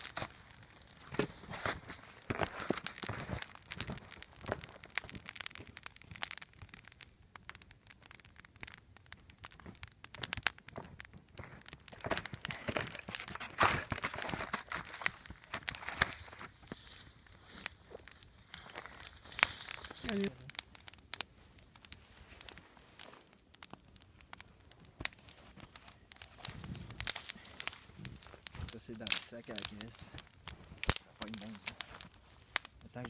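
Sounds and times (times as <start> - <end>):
campfire crackling and snapping: 0.0 - 33.0.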